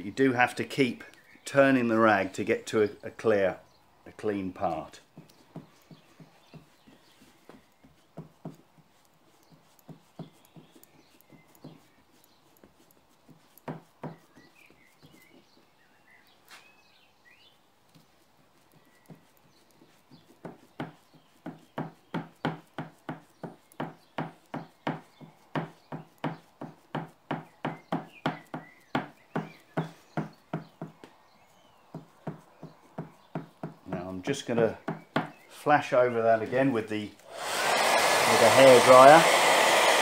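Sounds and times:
damp cloth patting board: 5.1s - 15.7s, 17.9s - 31.2s, 31.9s - 34.2s.

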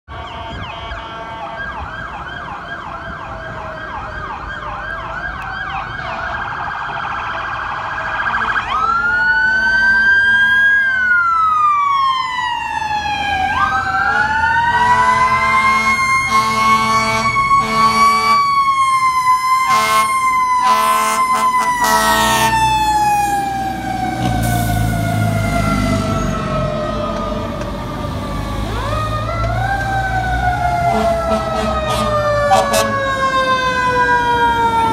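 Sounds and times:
siren wail: 0.1s - 34.9s
warbling siren yelp: 0.1s - 34.9s
short horn blasts: 14.8s - 18.4s, 19.7s - 22.5s, 30.9s - 32.9s.

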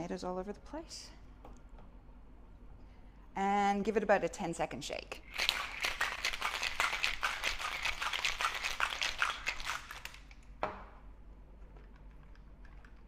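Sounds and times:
ice rattling in cocktail shaker: 5.3s - 10.3s.

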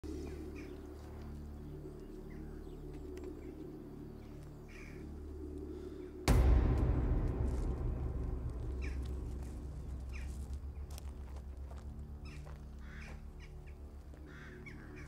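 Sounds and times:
steady low drone: 0.0s - 15.0s
loud noise: 6.3s - 10.8s
sudden loud hit: 6.3s - 11.4s.

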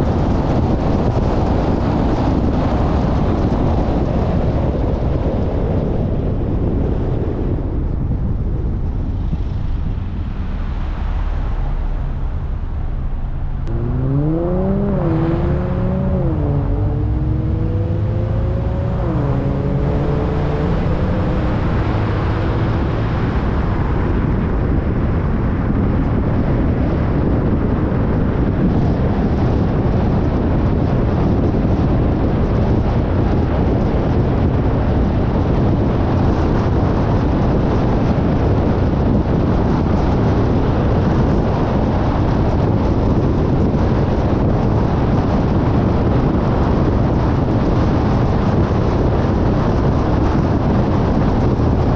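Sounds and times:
road and wind noise: 0.0s - 51.9s
car engine accelerating: 9.4s - 27.7s.

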